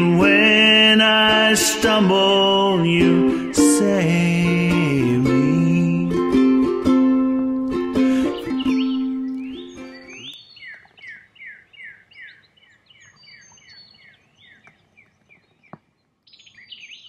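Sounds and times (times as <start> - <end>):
ukulele music: 0.0 - 10.4
songbird chirping: 7.1 - 17.0
bird calls: 8.1 - 17.0.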